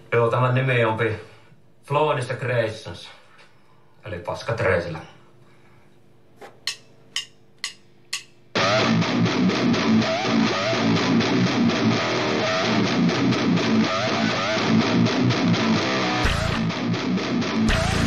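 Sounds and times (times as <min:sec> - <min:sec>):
drumstick clicks: 0:06.6 - 0:08.4
heavy metal band playing: 0:08.6 - 0:18.0.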